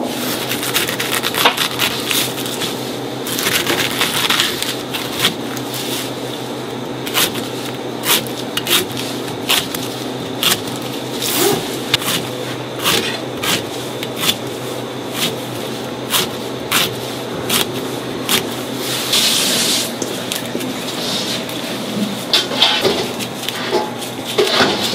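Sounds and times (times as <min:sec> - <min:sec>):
knife cutting on a cutting board: 0:08.0 - 0:14.5.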